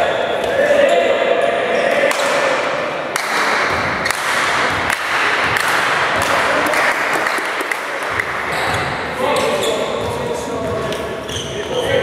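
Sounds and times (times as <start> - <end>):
sports hall noise: 0.0 - 12.0
volleyball slaps and thuds: 3.1 - 9.0.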